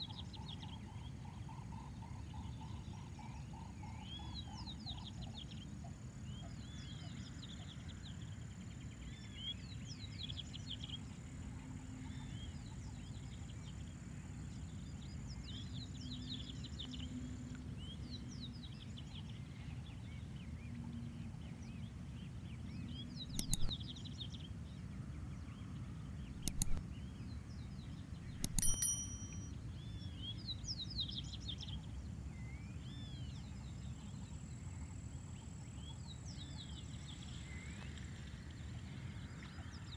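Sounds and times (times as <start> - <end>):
small birds chirping: 17.8 - 39.9
sharp clicks: 23.3 - 23.7, 26.4 - 26.8, 28.4 - 29.4
thin high tone: 28.4 - 29.6.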